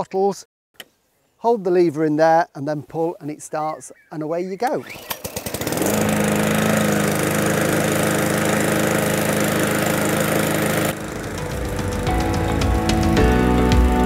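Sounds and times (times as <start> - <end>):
lawnmower engine running: 4.7 - 14.0.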